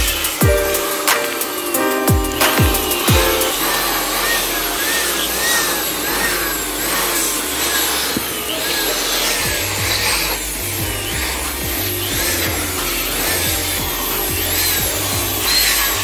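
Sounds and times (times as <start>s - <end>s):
music with stepping bass line: 0.0s - 3.8s, 9.5s - 15.7s.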